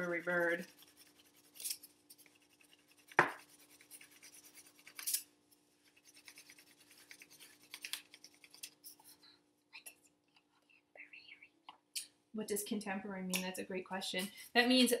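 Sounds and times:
crayon scratching on cardboard: 0.0 - 5.1, 5.8 - 9.2.

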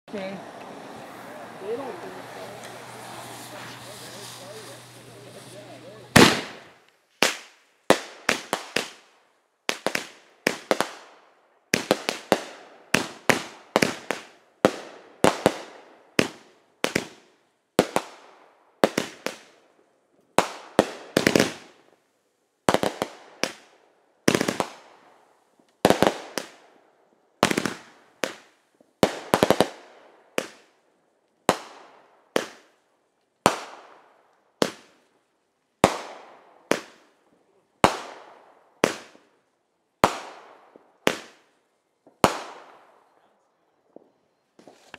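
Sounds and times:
fireworks bangs echoing: 0.2 - 9.1, 9.7 - 11.0, 11.7 - 19.6, 20.4 - 21.8, 24.3 - 25.0, 25.8 - 26.6, 27.4 - 30.7, 31.5 - 32.7, 33.4 - 35.0, 35.8 - 37.1, 37.8 - 39.3, 40.0 - 42.9.

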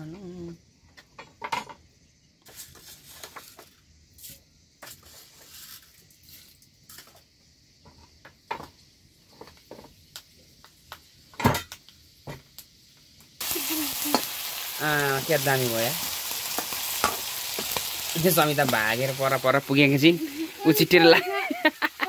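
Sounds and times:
pots and utensils clicking: 16.6 - 17.8.

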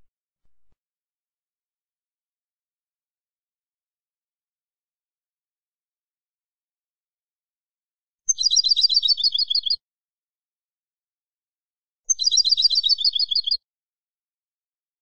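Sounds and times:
goldfinch high chirping song: 8.3 - 9.8, 12.1 - 13.6.

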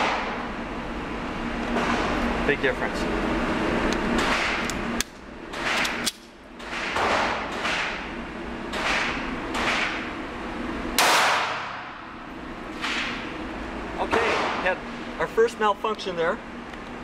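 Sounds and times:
pistol shots echoing indoors: 11.0 - 12.0.

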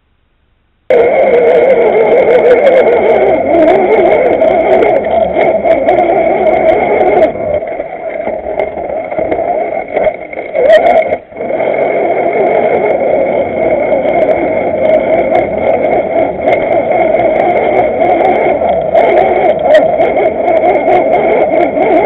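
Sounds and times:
toy car motor whine: 0.9 - 22.0.

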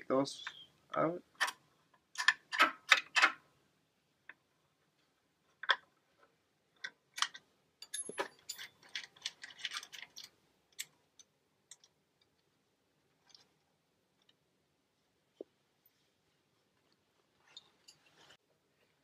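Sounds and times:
nut and bolt clinking: 1.4 - 3.4, 6.7 - 12.4.

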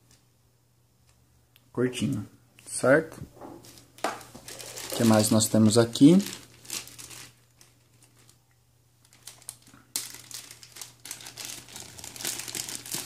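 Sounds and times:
plastic bag crinkling: 3.8 - 13.0.

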